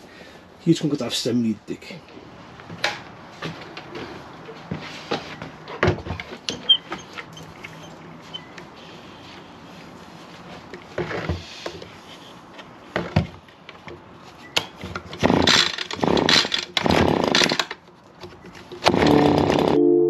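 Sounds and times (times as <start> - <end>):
recoil starter pulls: 15.0 - 17.8, 18.7 - 19.8.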